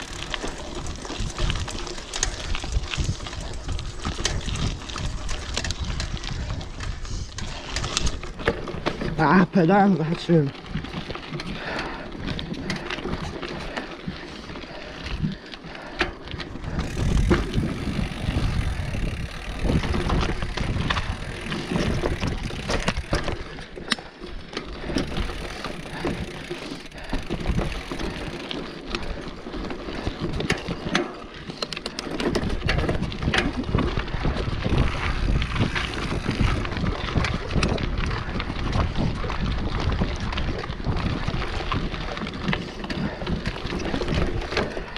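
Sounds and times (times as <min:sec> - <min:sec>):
wind buffeting microphone: 0:00.0 - 0:09.4, 0:10.2 - 0:23.6, 0:32.0 - 0:44.9
bike tyres on loose dirt: 0:00.0 - 0:44.9
bike knocking over rocks: 0:16.0 - 0:44.9.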